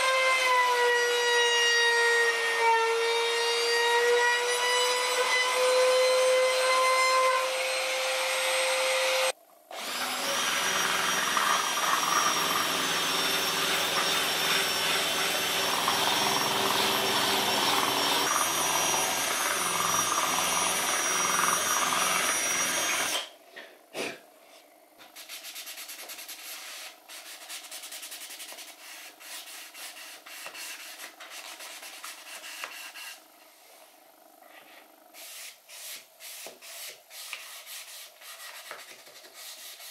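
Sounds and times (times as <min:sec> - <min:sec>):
trim router whining: 0:00.0 - 0:23.3
cordless drill spinning: 0:09.2 - 0:23.3
hand sanding wood: 0:25.0 - 0:33.2, 0:34.6 - 0:39.9.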